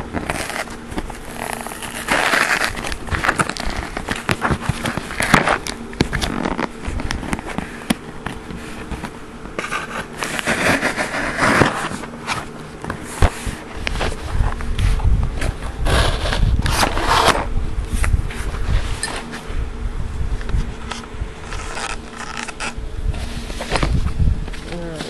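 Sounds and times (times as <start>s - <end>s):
cardboard box crackling and rustling: 0.0s - 19.5s
sharp clicks and scrapes: 20.8s - 22.8s.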